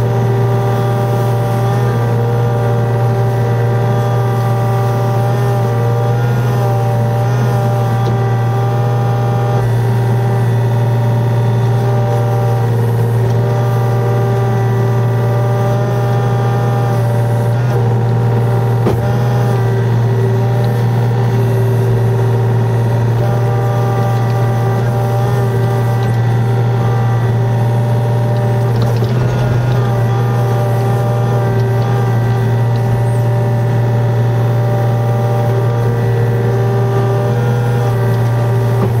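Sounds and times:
diesel engine running: 0.0s - 39.0s
hydraulic whine: 0.0s - 39.0s.

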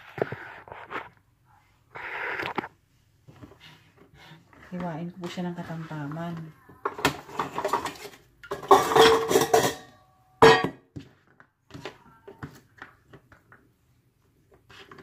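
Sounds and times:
metal bowl clanging: 6.8s - 10.8s
utensils clinking: 7.3s - 10.7s.

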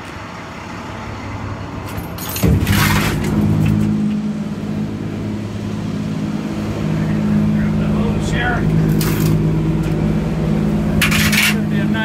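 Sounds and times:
steady low machinery drone: 0.0s - 12.0s
metallic clatter: 1.9s - 4.0s, 11.0s - 11.7s.

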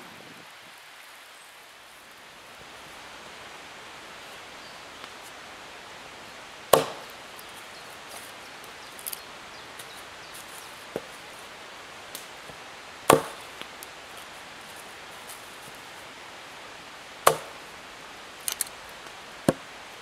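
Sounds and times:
steady hiss: 0.0s - 20.0s
wood cracking sharply: 6.7s - 7.2s, 12.1s - 13.9s, 17.2s - 17.6s.

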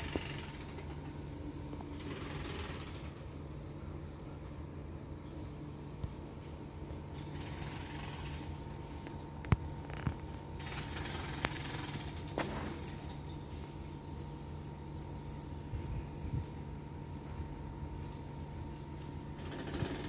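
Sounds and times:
bird chirping: 0.0s - 5.9s, 6.8s - 9.6s, 10.4s - 14.6s, 15.7s - 16.5s, 17.8s - 18.8s
steady low hum: 0.0s - 20.0s.

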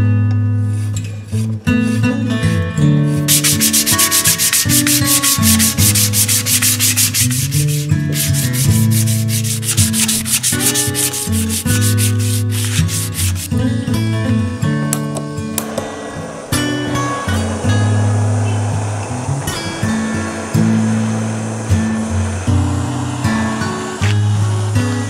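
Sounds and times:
sanding wood by hand: 0.8s - 13.5s.

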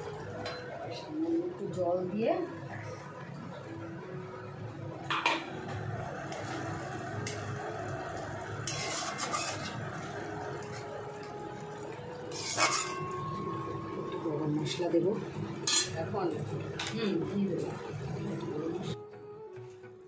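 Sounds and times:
cooking hiss: 5.6s - 18.8s
metal spatula scraping a pan: 8.6s - 10.1s, 12.2s - 13.2s, 15.6s - 16.0s.

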